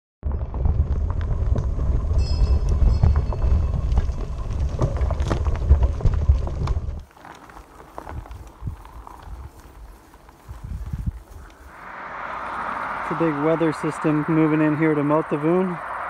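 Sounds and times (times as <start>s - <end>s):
wind rumble on microphone: 0.2s - 7.0s, 8.0s - 16.0s
gravel crunching under tyres: 0.2s - 16.0s
light breeze: 0.3s - 16.0s
high ringing tone: 2.1s - 4.9s.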